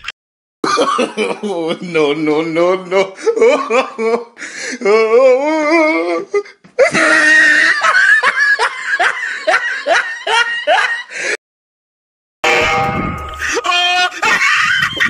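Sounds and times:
person laughing loudly: 0:00.6 - 0:02.0, 0:06.8 - 0:11.3, 0:13.4 - 0:15.0.

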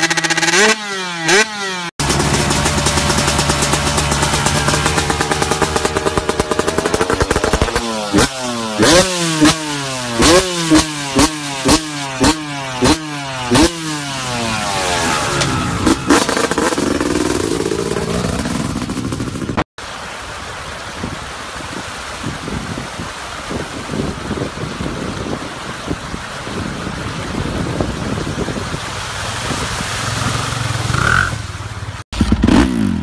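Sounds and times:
dirt bike engine revving: 0:00.0 - 0:19.7, 0:29.8 - 0:33.0
wind: 0:00.0 - 0:33.0
river water rushing: 0:02.0 - 0:32.0.

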